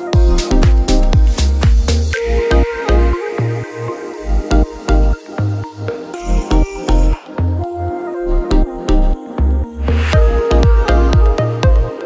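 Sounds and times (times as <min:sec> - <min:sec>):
music with heavy bass beat: 0:00.0 - 0:12.0
rising swoosh: 0:09.7 - 0:11.0.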